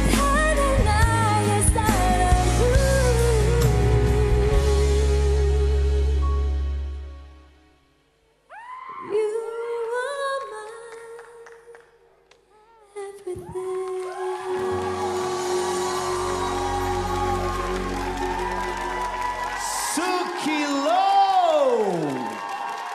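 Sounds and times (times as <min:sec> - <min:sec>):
woman singing pop ballad: 0:00.0 - 0:06.4, 0:09.0 - 0:11.5, 0:12.8 - 0:18.2
backing band playing: 0:14.6 - 0:20.8.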